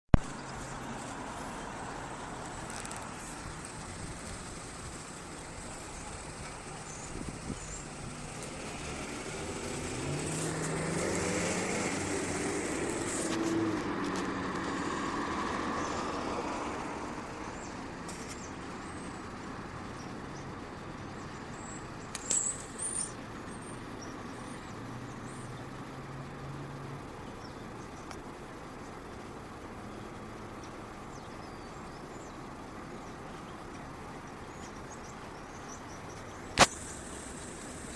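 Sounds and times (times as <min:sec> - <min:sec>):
vehicle engine passing by: 0:00.2 - 0:27.8.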